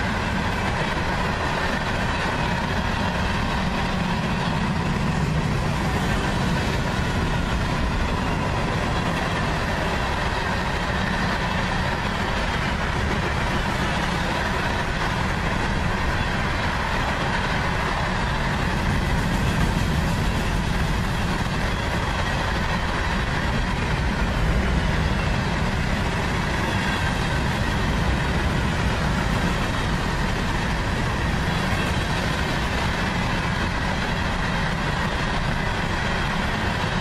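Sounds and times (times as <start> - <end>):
freight train rolling past: 0.0 - 37.0.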